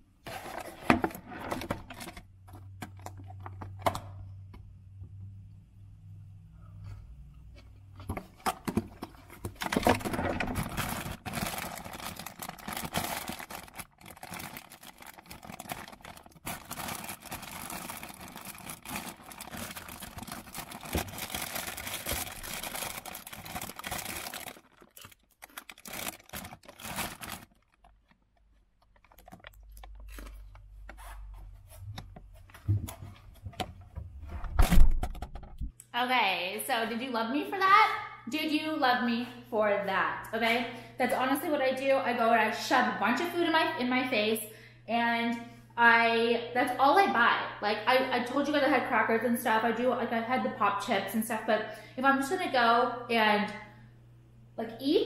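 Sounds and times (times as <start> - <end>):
plastic packaging crinkling: 8.6 - 31.1.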